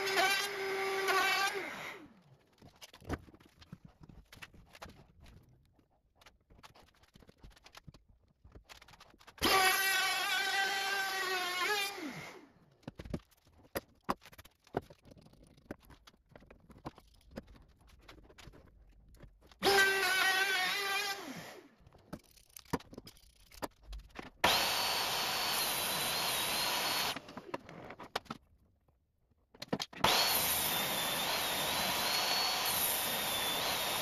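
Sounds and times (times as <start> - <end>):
router motor running: 24.4 - 27.4, 30.0 - 34.0.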